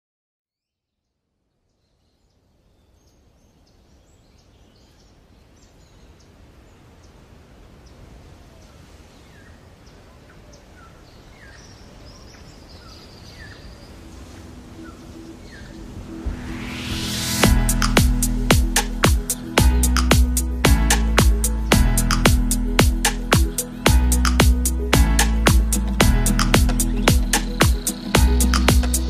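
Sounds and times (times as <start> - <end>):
small birds chirping: 1.0 - 16.8, 18.6 - 29.0
steady rushing background: 14.2 - 29.0.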